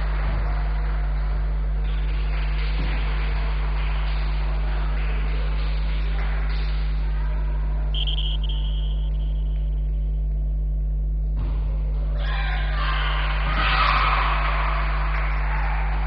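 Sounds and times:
low electrical hum: 0:00.0 - 0:16.0
short high tone: 0:08.0 - 0:09.9.

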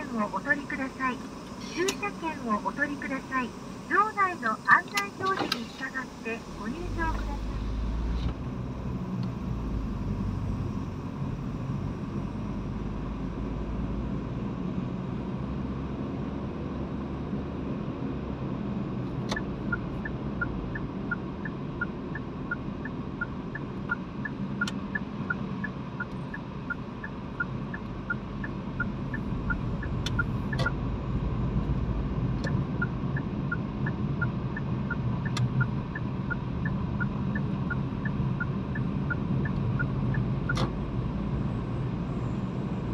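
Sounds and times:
turn signal ticking: 0:00.0 - 0:09.8, 0:19.0 - 0:42.0
car engine and tyre noise: 0:00.0 - 0:42.9.

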